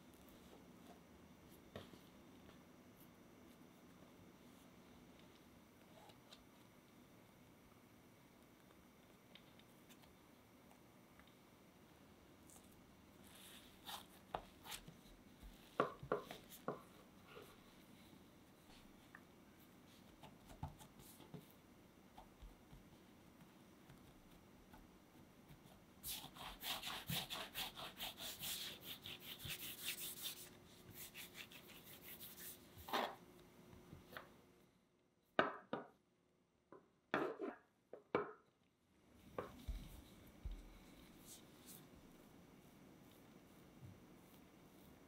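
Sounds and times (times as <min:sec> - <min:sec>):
hands rubbing dough: 0:12.4 - 0:33.0, 0:39.4 - 0:45.0.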